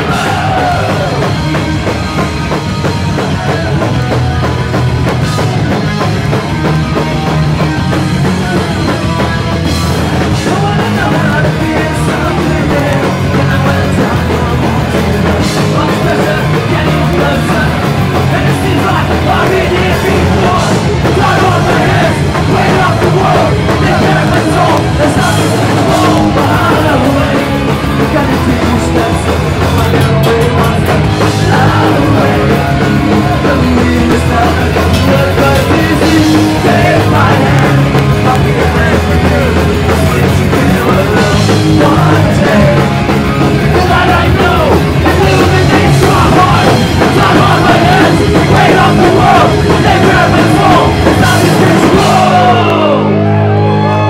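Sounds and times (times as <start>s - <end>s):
shouted vocals: 0.0s - 1.5s, 10.3s - 30.0s, 30.7s - 54.0s
drum kit: 0.0s - 54.0s
electric guitars: 0.0s - 54.0s.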